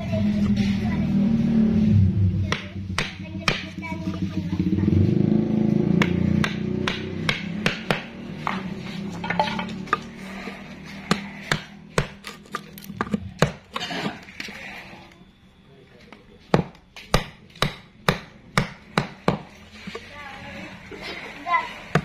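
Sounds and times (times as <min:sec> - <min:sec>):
low motor hum: 0:00.0 - 0:13.4
hammer knocking on chisel: 0:06.0 - 0:08.6.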